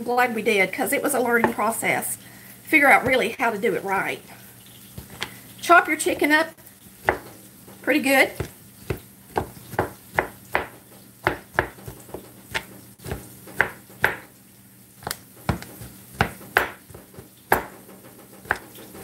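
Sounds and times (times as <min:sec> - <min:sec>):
knife chopping on cutting board: 0:07.0 - 0:07.4, 0:08.4 - 0:14.3, 0:15.0 - 0:17.8, 0:18.4 - 0:18.8.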